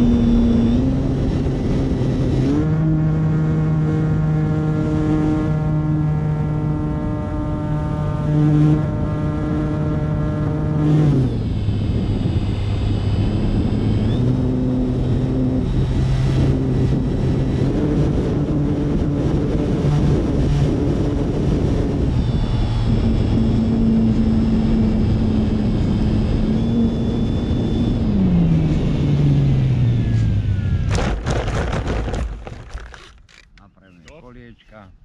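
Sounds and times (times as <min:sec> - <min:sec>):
model aircraft motor and propeller drone: 0:00.0 - 0:31.0, 0:31.6 - 0:34.9
wind rush over microphone: 0:00.0 - 0:33.1
knocks and scrapes on grass: 0:30.9 - 0:33.7.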